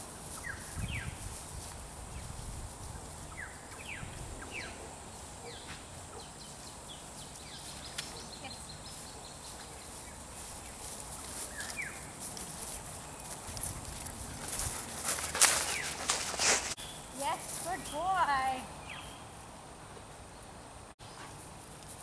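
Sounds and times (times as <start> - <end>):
steady high hiss: 0.0 - 22.0
birds chirping: 3.3 - 19.4.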